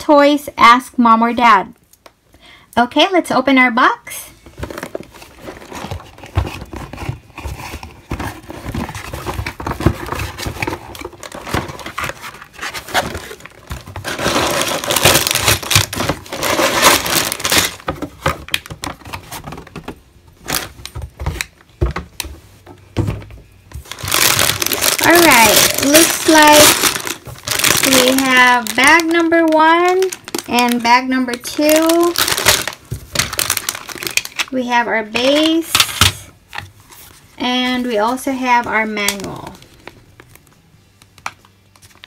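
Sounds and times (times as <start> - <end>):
plastic bags crinkling: 4.5 - 19.8, 23.8 - 34.6
cardboard box opening: 4.6 - 17.8.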